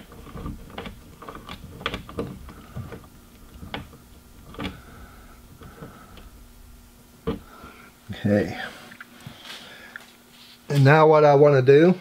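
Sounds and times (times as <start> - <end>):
fingers clicking and tapping bolt: 0.0 - 6.4.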